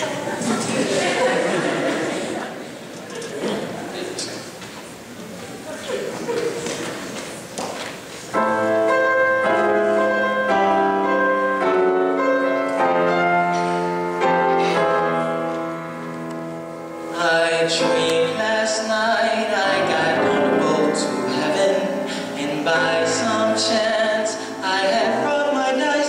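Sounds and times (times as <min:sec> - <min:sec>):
grand piano chords: 0:08.3 - 0:26.0
male singer: 0:17.1 - 0:26.0.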